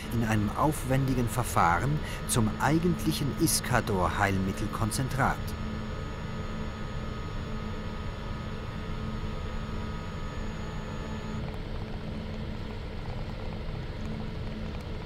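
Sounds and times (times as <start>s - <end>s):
thin high whine: 0.0s - 11.6s
machine low mechanical hum: 0.0s - 15.0s.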